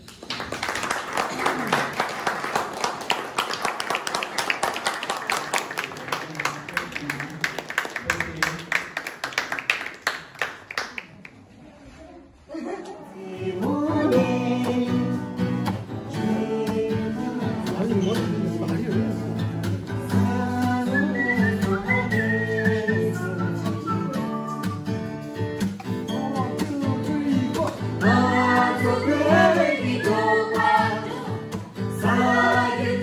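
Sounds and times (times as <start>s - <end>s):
people clapping: 0.0s - 11.6s
person singing: 13.0s - 18.4s, 26.0s - 31.4s
acoustic guitar strumming: 13.5s - 33.0s.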